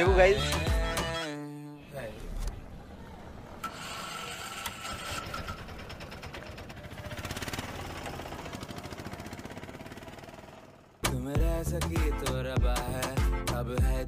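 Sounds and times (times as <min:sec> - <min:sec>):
small engine running: 0:03.6 - 0:11.0.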